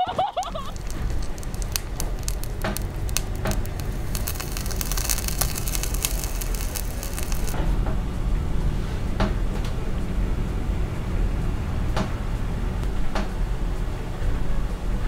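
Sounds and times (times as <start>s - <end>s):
meat patty sizzling in oil: 0.2s - 7.6s.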